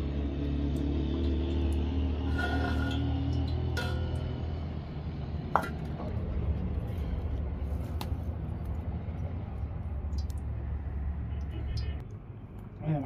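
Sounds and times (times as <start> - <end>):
low rumble of wood fire: 0.0 - 13.0
pot lid clinking against metal pot: 3.7 - 4.3.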